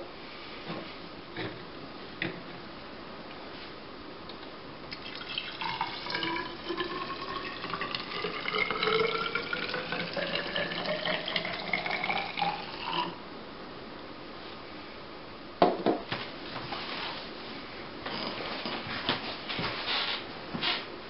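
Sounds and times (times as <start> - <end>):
water pouring into a cylinder: 4.9 - 13.2.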